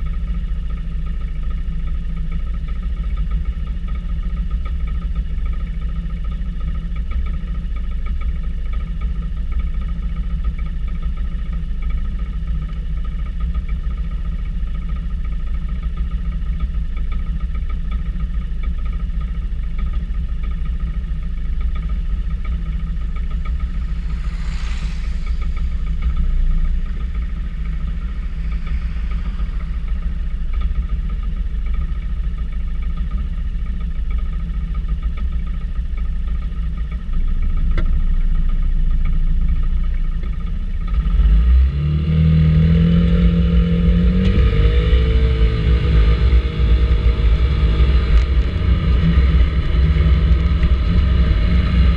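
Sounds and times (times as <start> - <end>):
brief hiss: 23.0 - 31.4.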